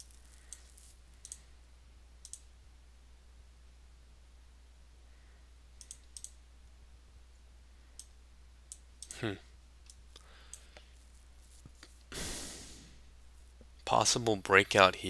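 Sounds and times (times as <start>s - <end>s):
computer mouse clicks: 0.0s - 1.4s, 2.2s - 2.5s, 5.8s - 6.4s, 8.0s - 9.2s, 9.8s - 10.9s
steady low hum: 0.0s - 15.0s.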